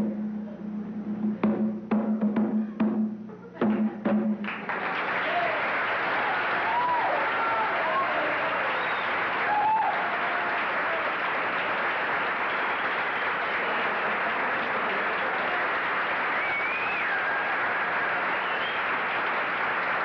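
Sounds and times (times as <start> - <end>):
audience applauding: 4.4 - 20.0
calls from crowd: 4.7 - 20.0.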